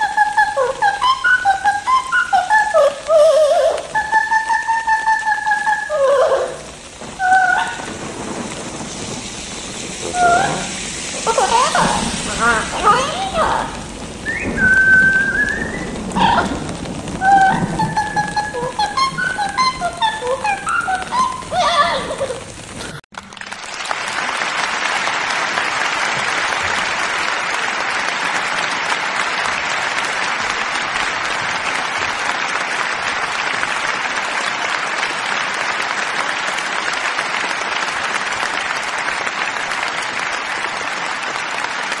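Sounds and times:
crowd applause: 0.0 - 42.0
parrot singing: 11.3 - 13.7, 17.2 - 22.4.

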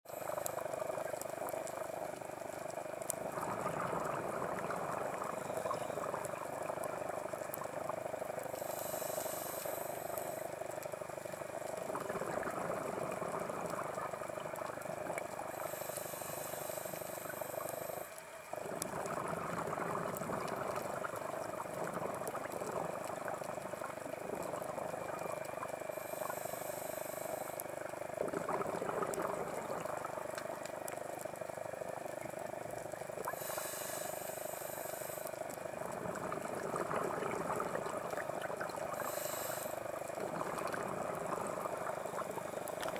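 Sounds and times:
regulator inhale hiss: 0.1 - 4.2, 4.9 - 7.7, 8.4 - 12.0, 14.6 - 20.1, 20.8 - 28.2, 32.9 - 42.9
exhaled air bubbling: 0.1 - 42.9
steady hum: 0.1 - 42.9.

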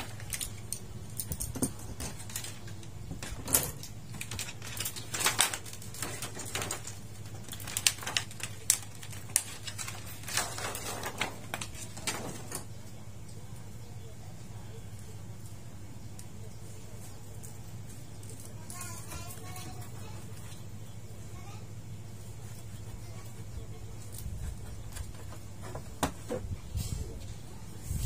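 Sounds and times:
plastic clicks and crinkling: 0.0 - 13.4.

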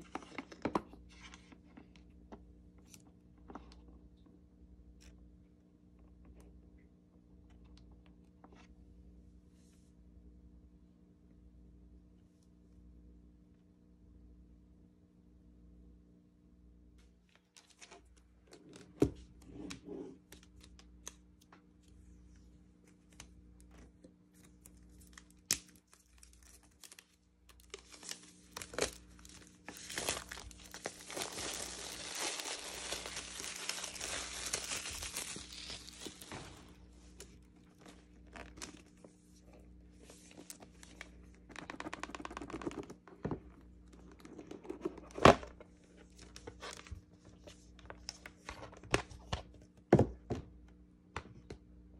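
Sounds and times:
plastic wrap tearing and crinkling: 24.4 - 36.8.

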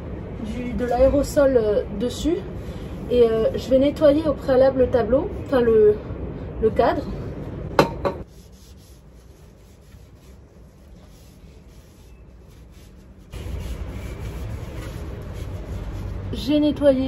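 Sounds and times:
low background noise: 0.0 - 17.0
tissue rubbing picture frame: 8.2 - 16.7.

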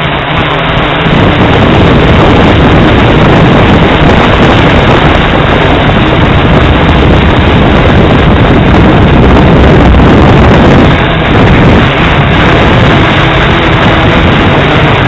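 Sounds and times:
propeller wash and wind buffeting: 0.0 - 15.0.

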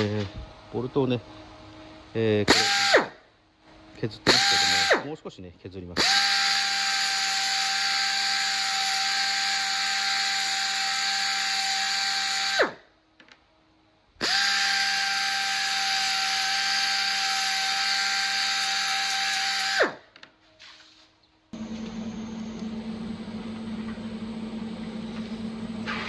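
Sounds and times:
belt sander grinding steel: 6.0 - 12.6, 14.2 - 19.9.

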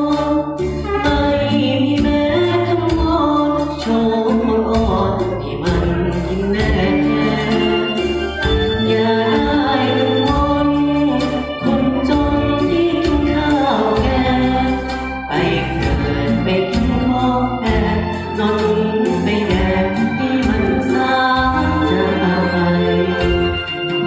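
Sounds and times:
ballad backing music over speakers: 0.0 - 24.0
man singing into microphone: 15.3 - 23.4.

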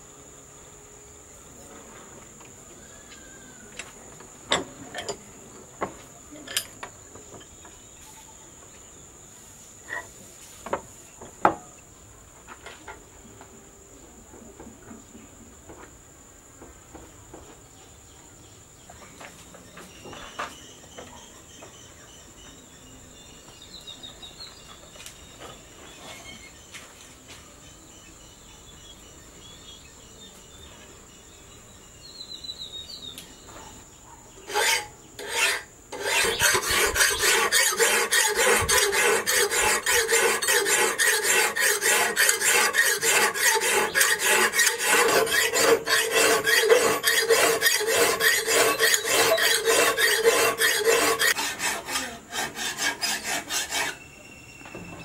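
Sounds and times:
high insect drone: 0.0 - 12.3
file scraping steel blade: 34.5 - 54.1.

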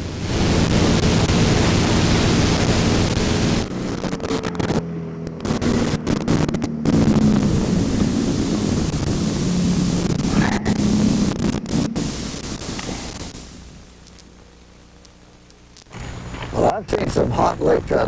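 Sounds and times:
wind buffeting microphone: 0.0 - 13.8
motorboat engine running: 0.0 - 18.0
water noise: 0.0 - 18.0.

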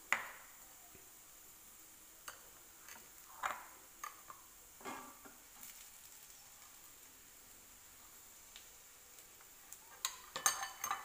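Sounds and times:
faint steady hiss: 0.0 - 11.0
spatula scraping and tapping pan: 2.2 - 5.8, 9.4 - 11.0.

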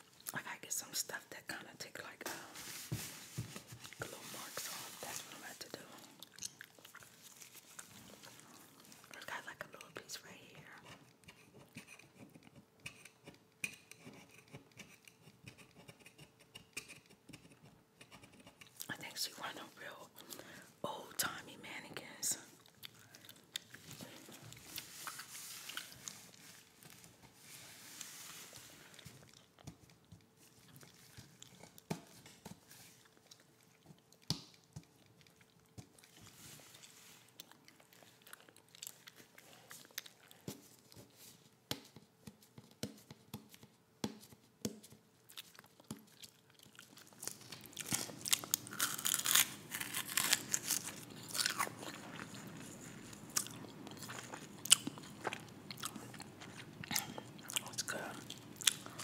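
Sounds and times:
person chewing food: 5.9 - 9.2, 22.5 - 41.1, 44.9 - 59.0.

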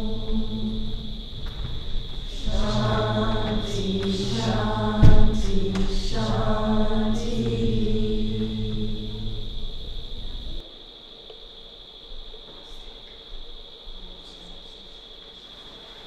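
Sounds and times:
group chanting in unison: 0.0 - 9.8
sharp thump: 4.9 - 6.0.

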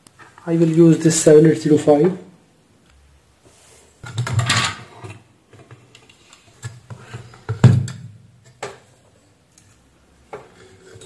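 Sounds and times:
thump on workbench: 7.5 - 8.1.

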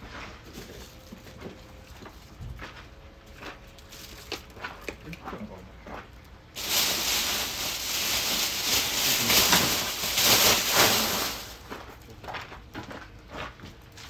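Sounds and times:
loud hissing rush: 6.6 - 11.6.

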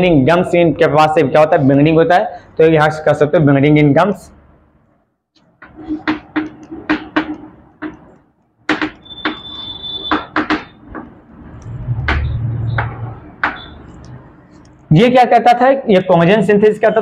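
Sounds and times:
chalk tapping on blackboard: 5.6 - 14.9
chalk squeak: 9.0 - 10.8.

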